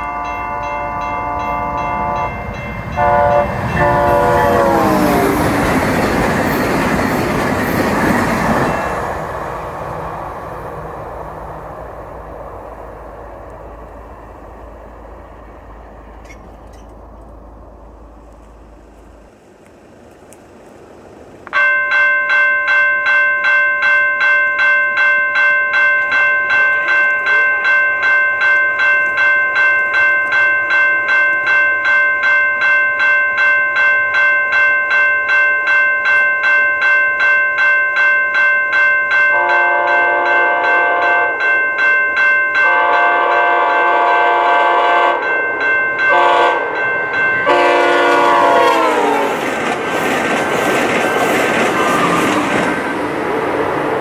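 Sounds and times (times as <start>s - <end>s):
train horn blasts: 0.0s - 5.4s, 39.3s - 41.4s, 42.6s - 45.3s, 46.1s - 46.8s, 47.4s - 49.4s
level crossing bell ringing: 0.0s - 9.0s, 21.6s - 48.4s
train passing at high speed: 0.0s - 22.4s, 26.0s - 54.0s.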